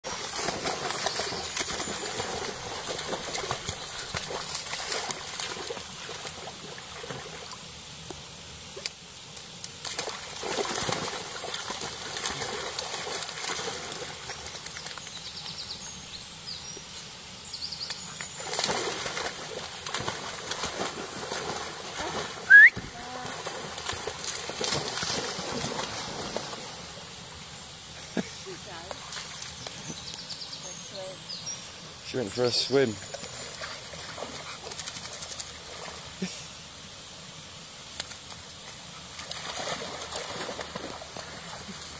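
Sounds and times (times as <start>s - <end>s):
dogs splashing in water: 0.0s - 7.6s, 9.8s - 15.1s, 18.0s - 27.0s, 33.0s - 36.2s, 39.0s - 41.9s
running water: 0.0s - 41.9s.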